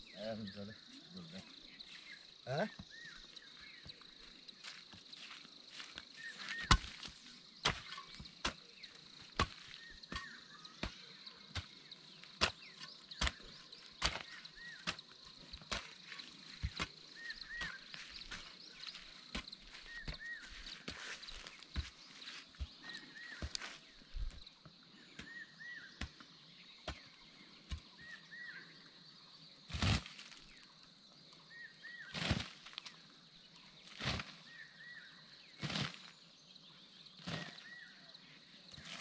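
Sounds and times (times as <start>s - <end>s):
insect drone: 0.0s - 39.0s
hand hoe chopping into soil: 4.7s - 24.4s, 25.2s - 26.2s, 26.8s - 28.2s, 29.7s - 30.5s, 32.1s - 33.0s, 33.9s - 34.6s, 35.6s - 36.1s, 37.2s - 37.8s, 38.7s - 39.0s.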